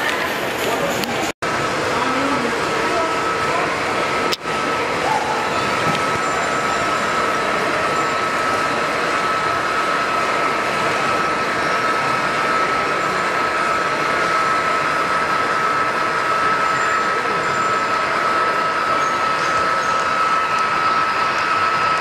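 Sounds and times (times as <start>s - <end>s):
model trains rolling rumble: 0.0s - 22.0s.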